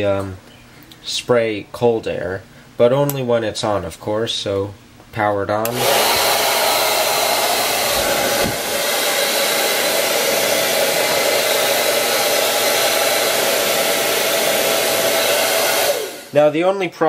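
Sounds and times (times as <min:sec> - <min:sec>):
hair dryer running: 0:05.6 - 0:16.4.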